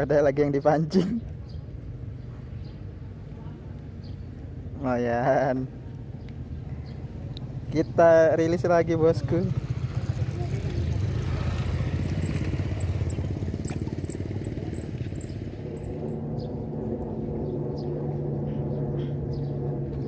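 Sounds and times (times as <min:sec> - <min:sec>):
engine droning: 0:06.4 - 0:20.0.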